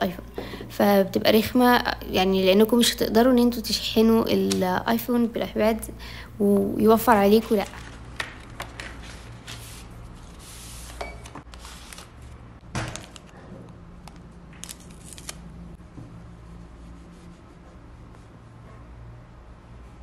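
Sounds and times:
paper and plastic rustling: 0:06.6 - 0:13.4.

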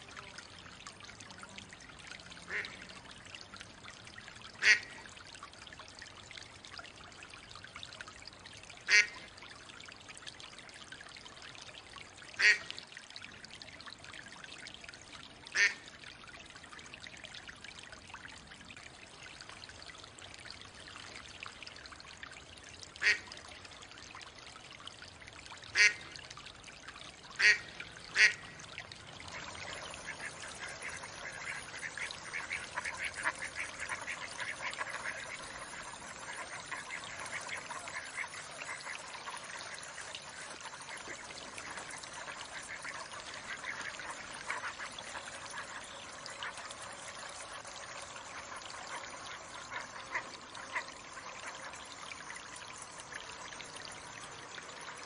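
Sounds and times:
soft patter from ducks: 0:00.0 - 0:05.9, 0:29.2 - 0:55.0
water trickling: 0:00.0 - 0:55.0
ducks quacking: 0:29.3 - 0:39.4.

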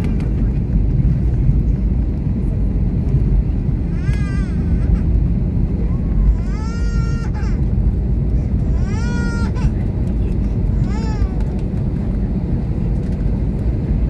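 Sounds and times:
airliner cabin rumble: 0:00.0 - 0:14.0
baby crying: 0:03.9 - 0:05.1, 0:06.2 - 0:07.7, 0:08.6 - 0:09.7.

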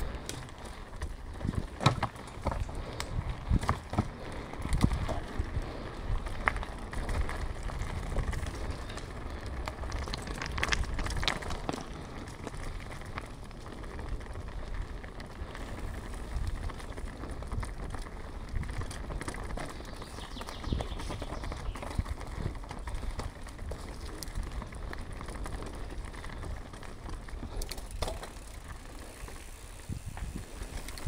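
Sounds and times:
bike tyre noise: 0:00.0 - 0:31.0
rattling clicks from bike: 0:00.0 - 0:31.0
wind rumbling on microphone: 0:00.0 - 0:31.0.

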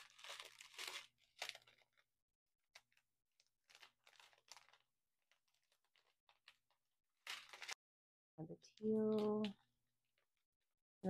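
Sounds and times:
plastic bags crinkling: 0:00.0 - 0:02.1, 0:02.8 - 0:07.8.

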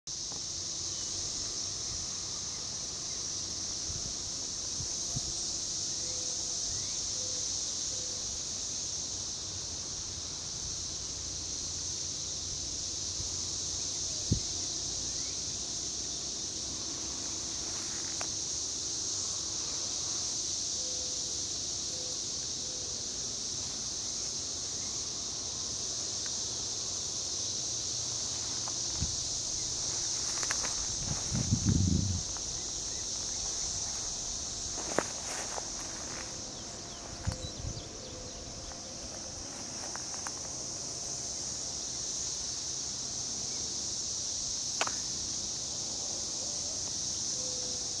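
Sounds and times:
cicadas singing in chorus: 0:00.0 - 0:48.0
sharp click: 0:44.8 - 0:45.1.

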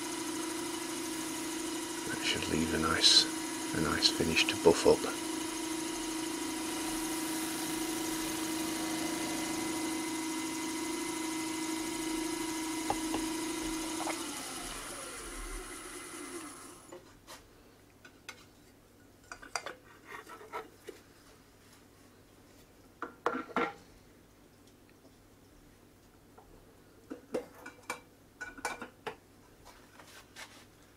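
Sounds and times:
cloth rubbing spinning wood: 0:00.0 - 0:16.4
wood lathe whining: 0:00.0 - 0:17.0.

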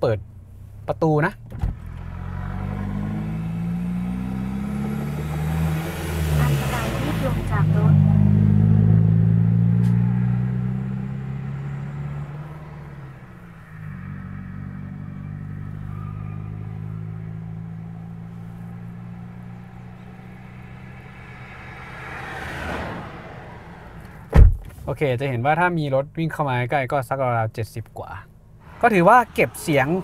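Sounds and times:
road traffic rumble: 0:00.0 - 0:26.2, 0:28.0 - 0:30.0
heavy truck passing: 0:02.0 - 0:24.3.

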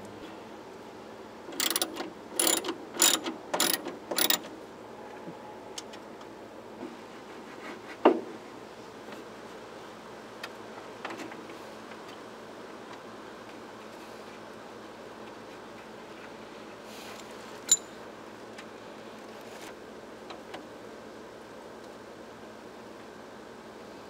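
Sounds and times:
ratchet strokes: 0:01.6 - 0:04.4.

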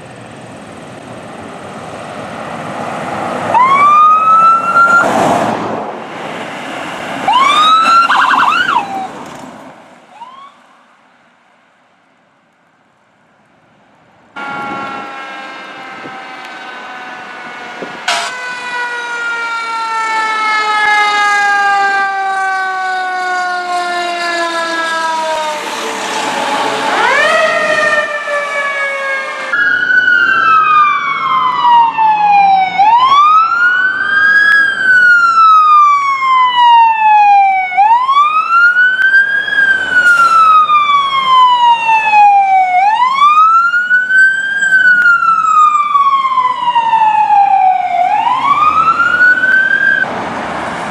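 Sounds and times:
fire engine siren wailing: 0:00.6 - 0:05.6, 0:07.2 - 0:09.4, 0:10.1 - 0:10.9, 0:14.4 - 0:50.9.

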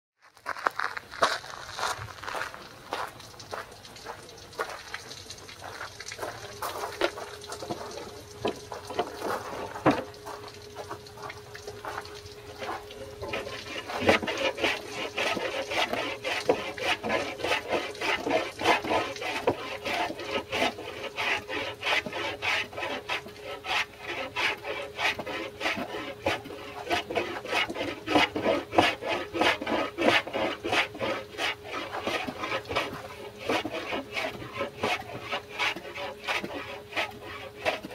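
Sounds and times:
footsteps on gravel: 0:00.2 - 0:14.0
hand plane shaving wood: 0:12.6 - 0:37.9.

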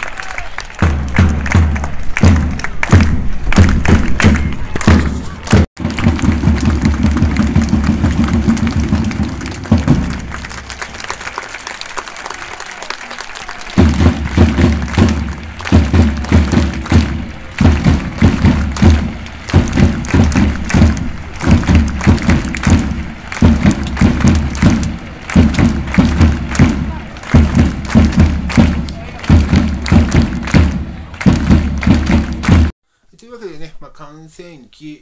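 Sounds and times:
crowd applauding: 0:00.0 - 0:32.8
low thuds beat: 0:00.8 - 0:11.0, 0:13.8 - 0:32.8.

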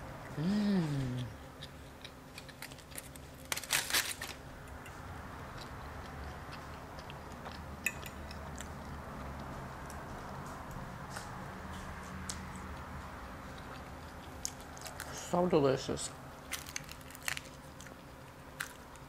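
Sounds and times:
chewing with small clicks: 0:01.2 - 0:03.3, 0:04.6 - 0:15.2
crisp crunching of fried fish: 0:01.6 - 0:04.4, 0:13.6 - 0:15.3, 0:16.4 - 0:19.0.

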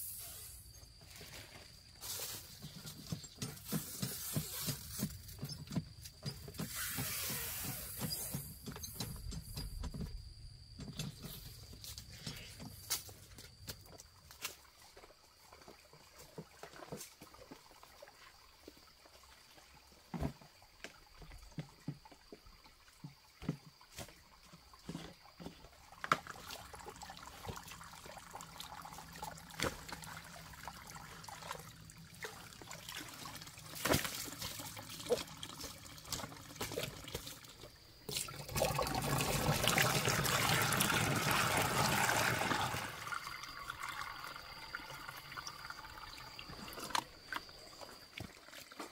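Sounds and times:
water trickling into plastic basin: 0:24.5 - 0:48.9.

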